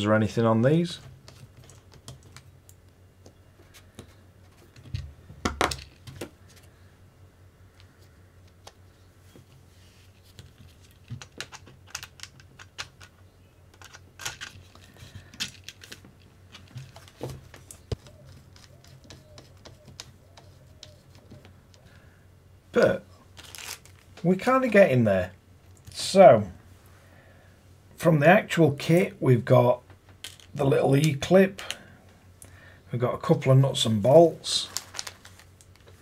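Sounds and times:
plastic and metal parts clicking: 11.0 - 19.4.

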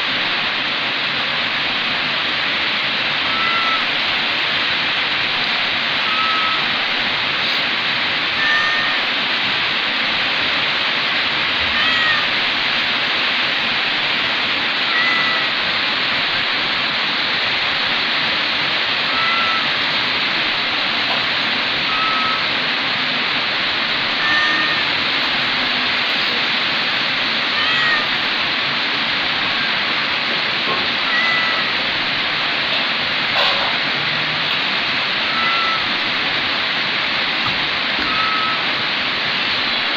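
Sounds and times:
steady loud hiss: 0.0 - 39.9
kitten meowing: 3.3 - 3.9, 6.0 - 6.8, 8.4 - 9.1, 11.7 - 12.4, 14.8 - 15.6, 19.1 - 19.7, 21.9 - 22.5, 24.1 - 24.9, 27.5 - 28.2, 31.0 - 31.8, 35.2 - 36.0, 38.0 - 38.7.

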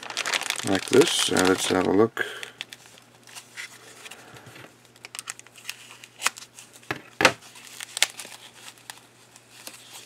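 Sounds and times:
foam sheet rustling and crinkling: 0.0 - 2.1.

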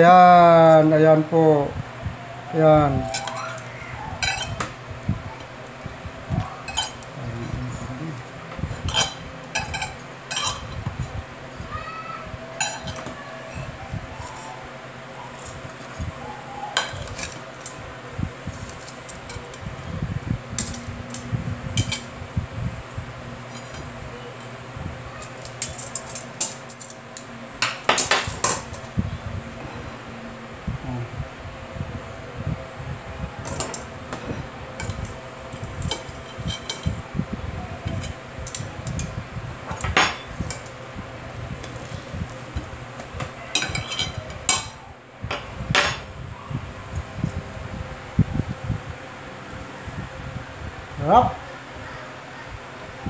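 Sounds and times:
knife and fork scraping a plate: 3.0 - 4.8, 6.7 - 7.6, 8.7 - 11.0, 12.6 - 14.6, 15.3 - 16.1, 16.7 - 17.8, 18.5 - 19.6, 20.6 - 22.2, 23.4 - 24.0, 25.2 - 27.0, 33.4 - 37.0, 41.6 - 44.8.

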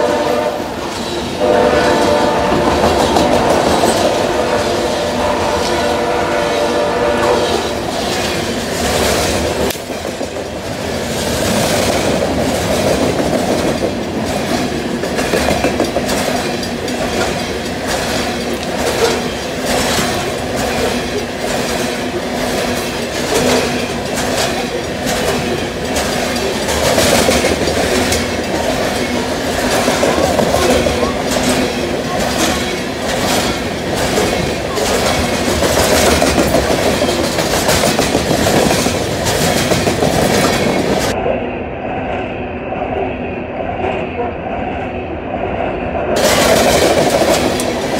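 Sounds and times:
train horn: 0.0 - 8.1
train wheels clattering over rail joints: 0.8 - 5.2, 7.4 - 41.2, 46.2 - 47.9.

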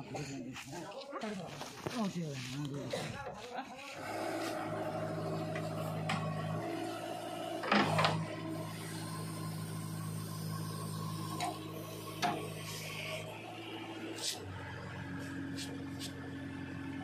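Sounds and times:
diesel engine running: 4.0 - 17.0.

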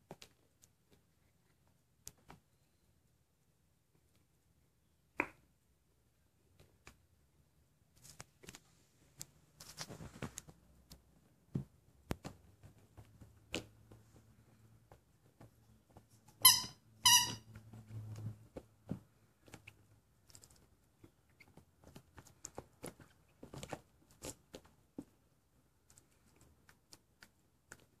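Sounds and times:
rubber squeaky toy squeaking: 16.2 - 17.6.

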